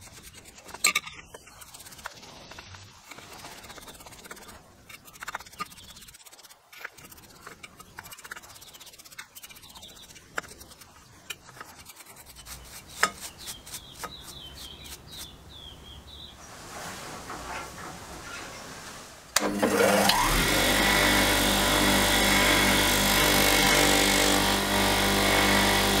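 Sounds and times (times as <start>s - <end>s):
brush scrubbing in metal can: 0.0s - 15.3s.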